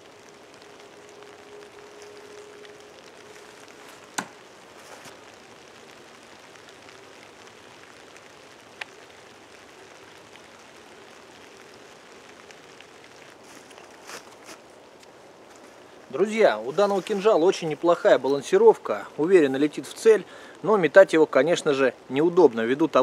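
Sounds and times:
faint outdoor hiss: 0.0 - 23.0
knife striking tree trunk: 4.1 - 4.4.

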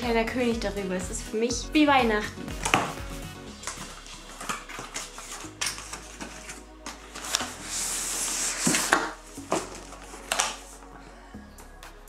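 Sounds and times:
cardboard scraping on cardboard: 3.6 - 10.6.

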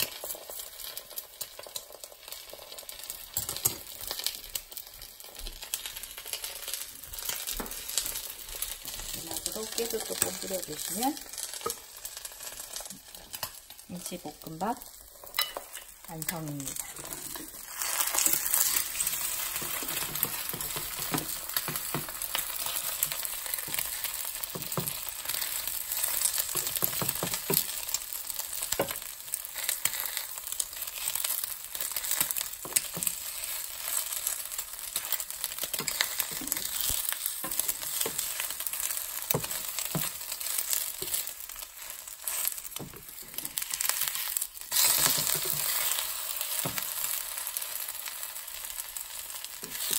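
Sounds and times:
egg sizzling in a pan: 0.0 - 49.9
spatula scraping and tapping: 11.3 - 11.9, 15.2 - 27.9, 35.0 - 46.9.

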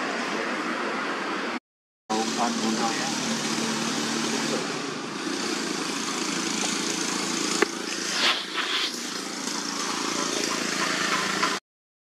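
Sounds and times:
outdoor background noise: 0.0 - 11.6.

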